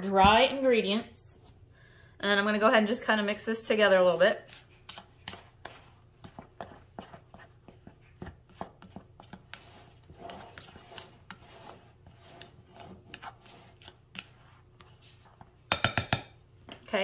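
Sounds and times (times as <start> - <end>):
spatula scraping glass bowl: 8.5 - 15.5.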